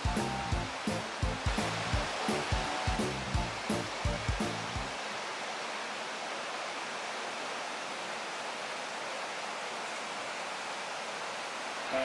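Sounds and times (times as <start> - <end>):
river rushing over rapids: 0.0 - 12.0
waterfall: 0.0 - 12.0.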